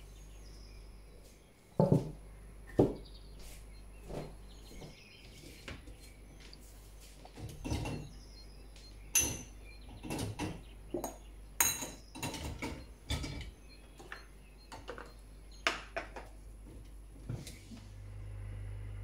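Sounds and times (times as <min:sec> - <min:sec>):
glasses clinking on wire rack: 0:09.1 - 0:13.5.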